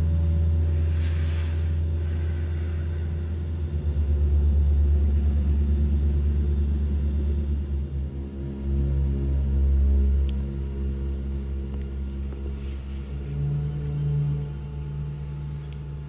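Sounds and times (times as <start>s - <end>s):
low rumbling drone: 0.0s - 16.0s
hissing swell: 0.6s - 5.6s.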